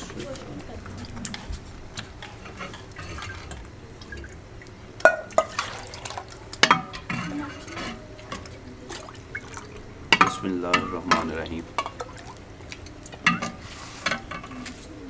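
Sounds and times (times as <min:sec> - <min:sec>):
tableware clinking: 0:10.1 - 0:12.2.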